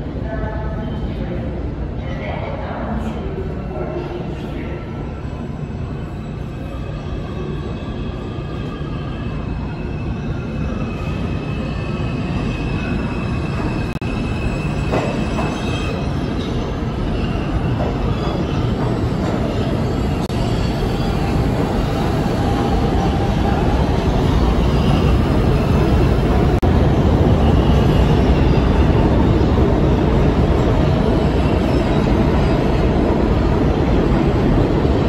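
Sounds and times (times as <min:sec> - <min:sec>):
train wheels rumbling on rails: 0:09.6 - 0:35.0.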